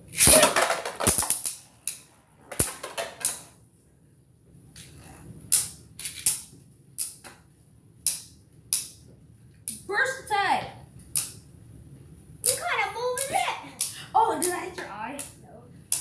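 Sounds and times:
spinning tops clacking: 0.1s - 3.5s.

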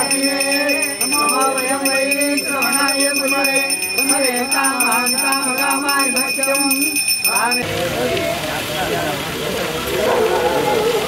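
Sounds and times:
devotional music: 0.0s - 7.6s
hand bell ringing rapidly: 0.0s - 7.6s.

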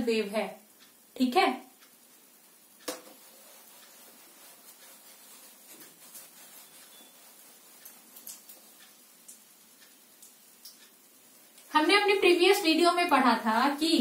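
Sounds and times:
duster rubbing on whiteboard: 3.0s - 8.7s.

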